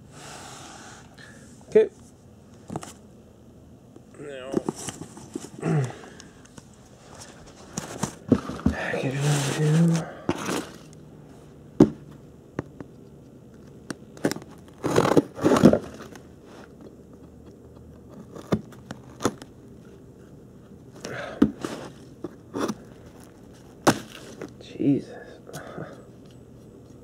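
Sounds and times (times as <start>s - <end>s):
cardboard and packing peanuts rustling: 7.0s - 11.0s, 14.2s - 16.8s, 20.9s - 24.6s.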